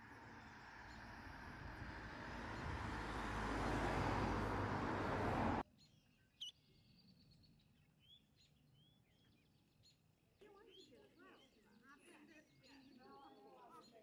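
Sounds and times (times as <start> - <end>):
vehicle passing: 0.0 - 5.6.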